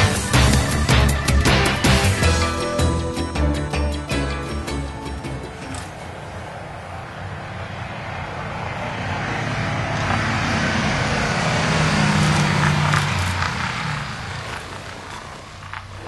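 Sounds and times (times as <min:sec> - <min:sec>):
vehicle driving past: 0:05.4 - 0:16.0.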